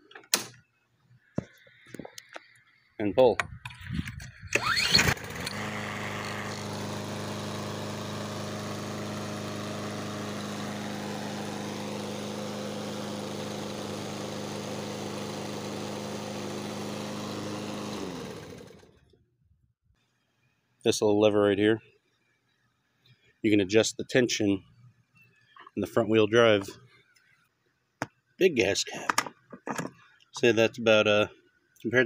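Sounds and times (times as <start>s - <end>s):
lawn mower pull start: 4.1s - 19.2s
lawn mower engine running: 4.5s - 19.1s.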